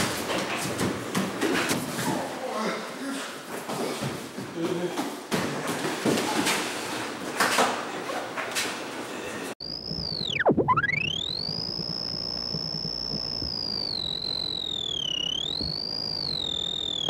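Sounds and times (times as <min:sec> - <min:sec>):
electronic tone sweeping in pitch: 0:09.6 - 0:17.0.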